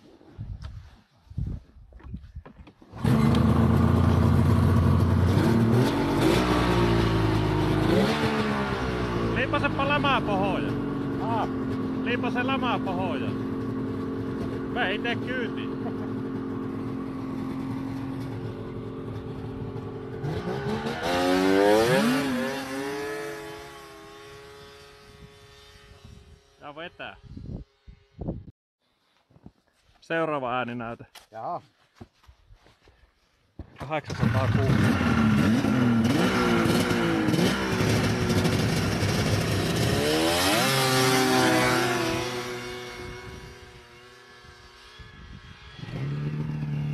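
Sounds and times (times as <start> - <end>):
snowmobile engine revving: 2.9 - 27.2, 34.0 - 46.9.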